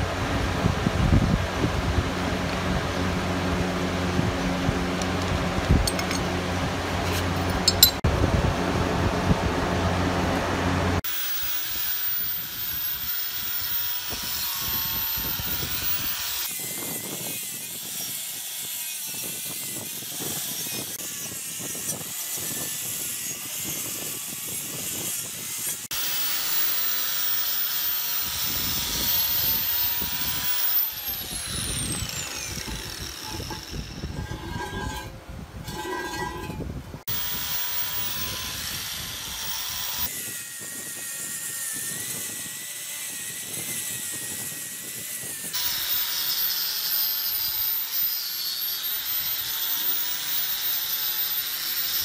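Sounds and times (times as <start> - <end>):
power tool whine: 9.9 - 35.1, 35.7 - 52.0.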